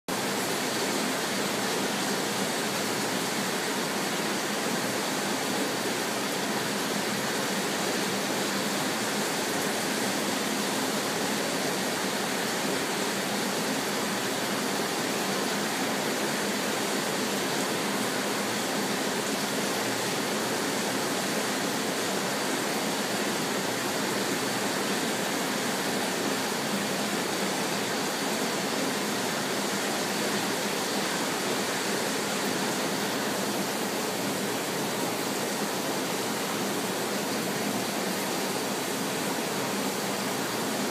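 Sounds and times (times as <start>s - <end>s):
aquarium water rushing: 0.1s - 40.9s.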